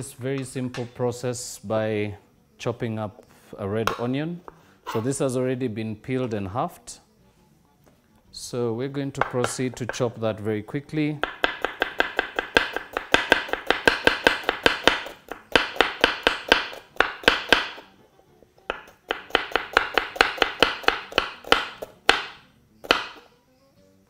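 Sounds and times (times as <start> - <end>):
knife chopping on wooden board: 11.2 - 17.8, 18.7 - 23.2.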